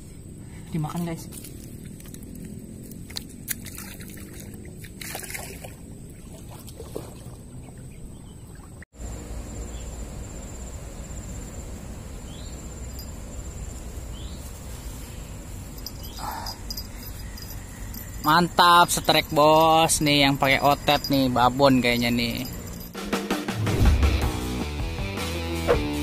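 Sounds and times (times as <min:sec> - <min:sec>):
constant high-pitched whine: 0:09.0 - 0:23.0.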